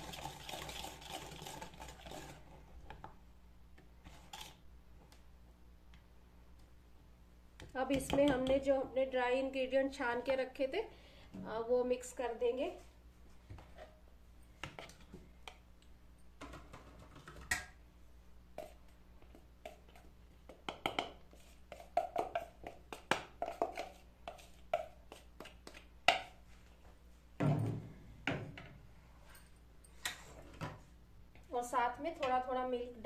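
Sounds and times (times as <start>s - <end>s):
plastic bowls tapping and knocking: 16.4s - 17.8s, 20.4s - 24.0s.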